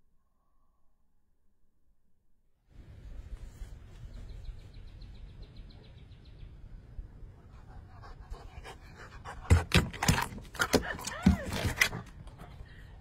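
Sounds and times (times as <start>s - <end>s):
dog panting: 7.4s - 12.5s.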